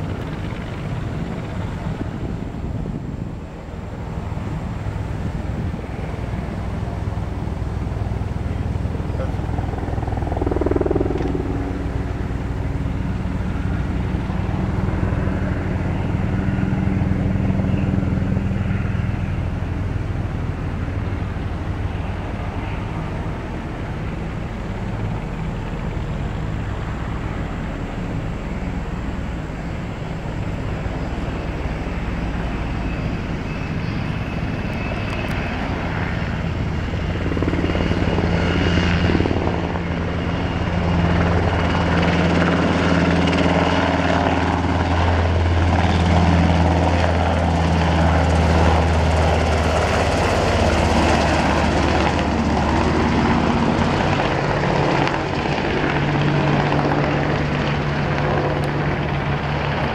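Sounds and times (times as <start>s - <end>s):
helicopter rotor beating: 0.0s - 59.9s
high turbine whine: 0.0s - 59.9s.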